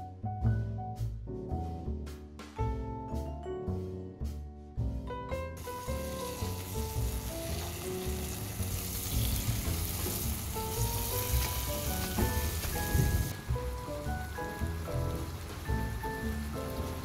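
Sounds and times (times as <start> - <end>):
light background music: 0.0 - 17.0
chicken sizzling in hot oil: 5.6 - 17.0.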